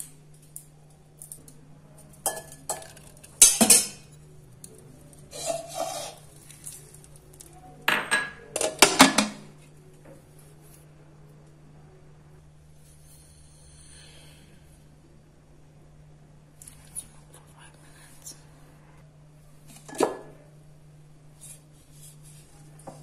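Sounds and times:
low steady hum: 0:00.0 - 0:23.0
steel lid clinking: 0:02.2 - 0:04.0.

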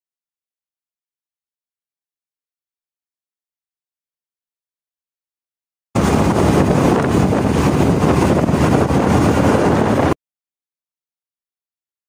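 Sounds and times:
motorcycle road and engine noise: 0:06.0 - 0:10.2
wind rushing over microphone: 0:06.0 - 0:10.2.

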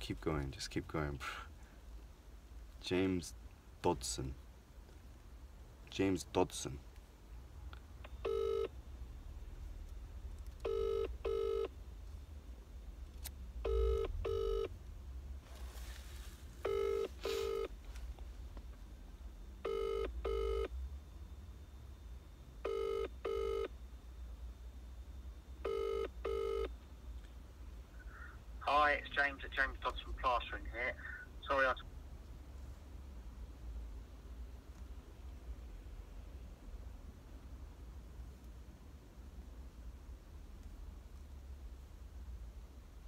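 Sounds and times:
telephone ringback tone: 0:08.2 - 0:08.7, 0:10.7 - 0:11.7, 0:13.7 - 0:14.7, 0:16.6 - 0:17.7, 0:19.6 - 0:20.7, 0:22.6 - 0:23.7, 0:25.6 - 0:26.7.

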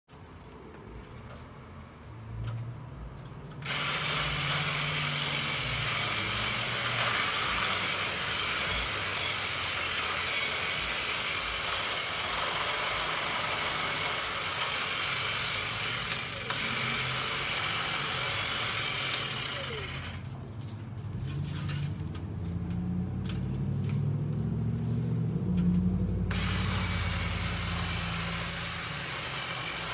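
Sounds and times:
hedge trimmer running: 0:03.6 - 0:20.4, 0:25.6 - 0:29.9.

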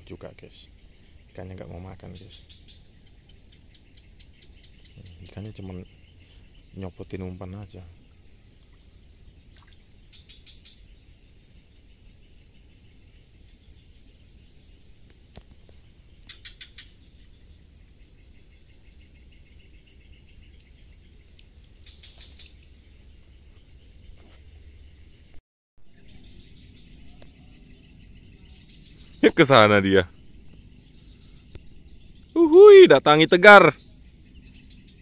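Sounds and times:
insects droning: 0:00.0 - 0:35.0
rapid chirping trills: 0:00.2 - 0:14.9, 0:15.7 - 0:25.3, 0:25.9 - 0:35.0.

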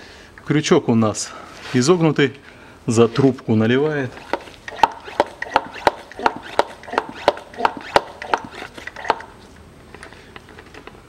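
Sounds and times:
squeaky hand pump strokes: 0:04.1 - 0:09.3.

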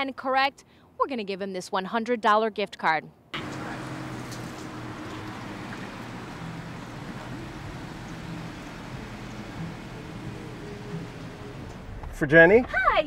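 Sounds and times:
city street traffic: 0:03.4 - 0:13.0.

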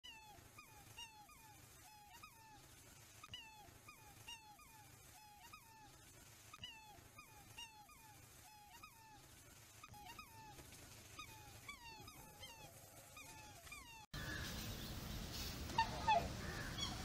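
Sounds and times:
swans bugling: 0:09.9 - 0:17.0.

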